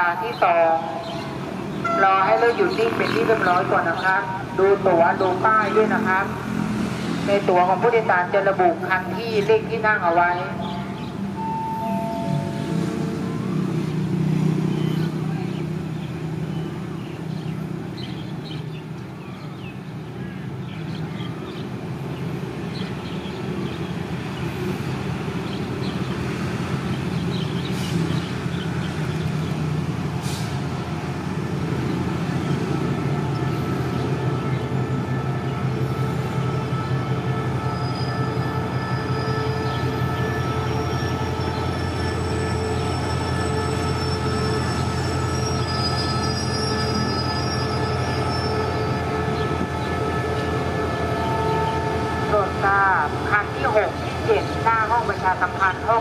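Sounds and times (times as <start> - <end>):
locomotive engine drone: 0.0 - 56.0
high-pitched wheel squeal: 40.7 - 48.8.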